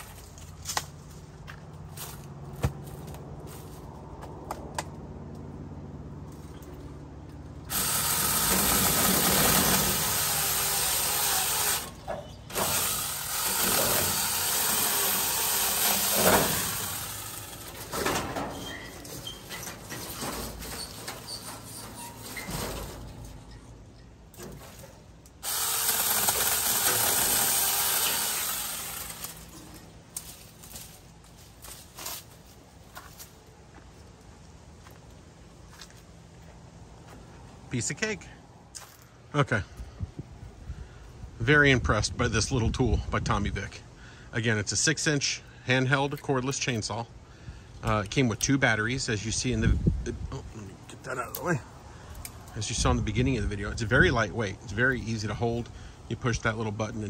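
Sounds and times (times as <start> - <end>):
branches and leaves rustling: 0.0 - 4.7, 6.2 - 37.6
mini chainsaw cutting branches: 7.7 - 18.4, 25.4 - 31.0.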